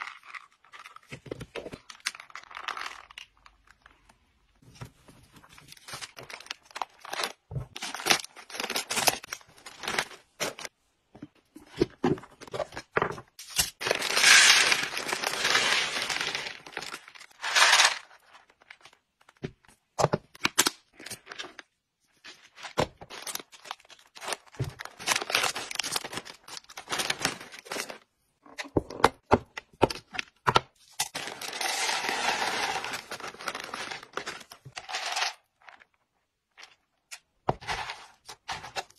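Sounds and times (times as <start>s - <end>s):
plastic packaging crinkling: 13.5s - 19.0s, 23.1s - 28.0s.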